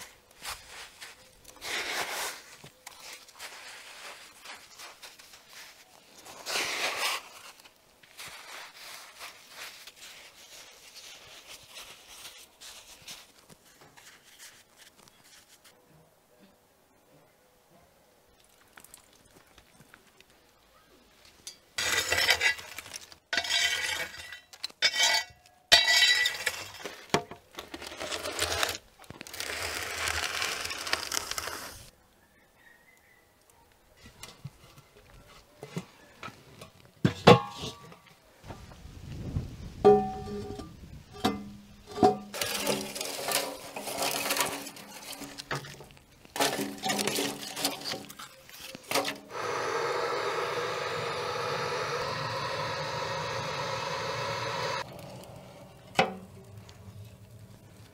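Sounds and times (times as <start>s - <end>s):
metal tool scraping stone floor: 21.8s - 31.8s, 42.3s - 49.6s
torch flame hissing: 49.3s - 55.8s.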